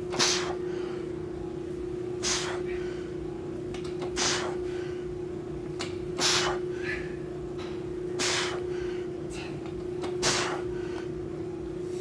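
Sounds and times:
steady hum: 0:00.0 - 0:12.0
man exhaling forcefully: 0:02.2 - 0:02.9, 0:06.2 - 0:07.1, 0:08.2 - 0:09.5.

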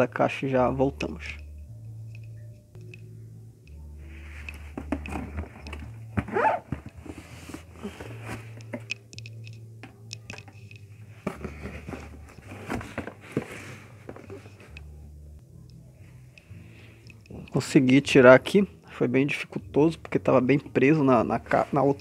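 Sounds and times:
low steady hum: 0:00.0 - 0:22.0
cardboard boxes rustling and scraping: 0:04.2 - 0:08.8, 0:11.2 - 0:14.7.

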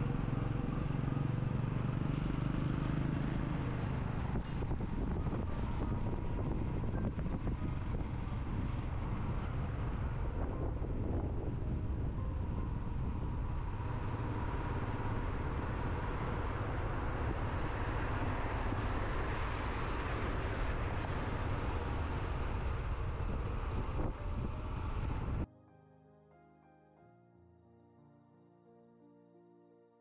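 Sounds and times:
motorcycle engine: 0:00.0 - 0:25.4
road noise: 0:00.0 - 0:25.5
wind rush on microphone: 0:03.6 - 0:25.5.

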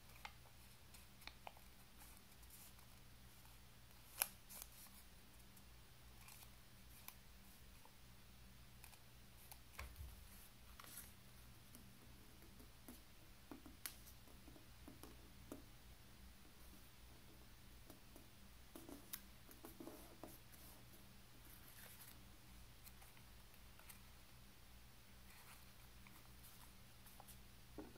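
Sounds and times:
paper being folded and creased: 0:00.1 - 0:05.0, 0:06.2 - 0:07.2.

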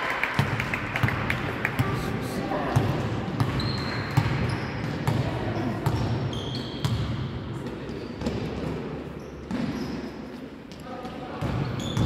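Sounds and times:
shoes squeaking on floor: 0:03.5 - 0:04.8, 0:05.6 - 0:06.9, 0:09.1 - 0:10.2, 0:11.7 - 0:12.0.

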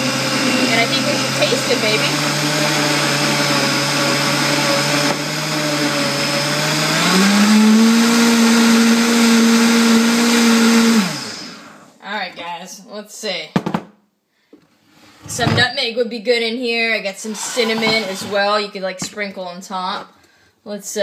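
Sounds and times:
blender motor running: 0:00.0 - 0:11.9.

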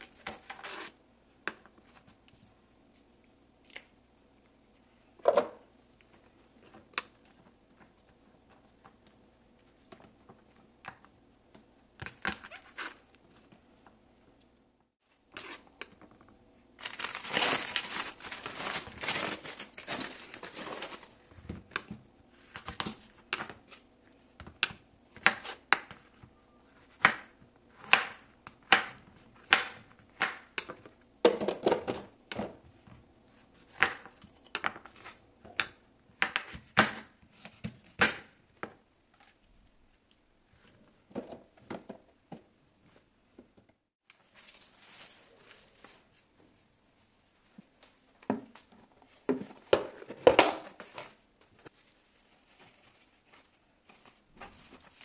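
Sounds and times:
leafy greens rustling: 0:16.8 - 0:21.2, 0:44.2 - 0:46.2
wrapping crinkling and tearing: 0:16.8 - 0:21.2.

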